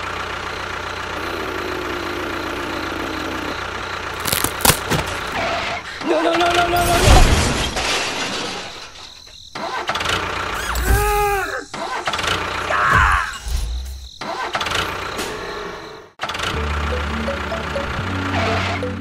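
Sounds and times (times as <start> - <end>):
tractor engine: 0.0 - 6.2, 16.2 - 19.0.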